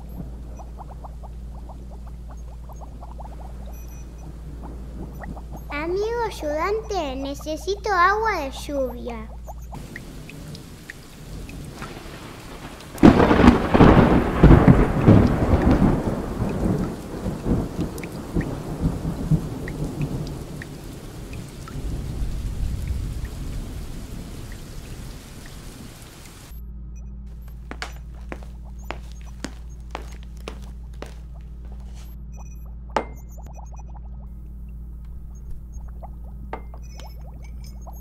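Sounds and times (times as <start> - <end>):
rumbling thunderclap: 0.0 - 6.7, 9.7 - 26.1
steady rain: 0.0 - 26.5, 27.4 - 31.2.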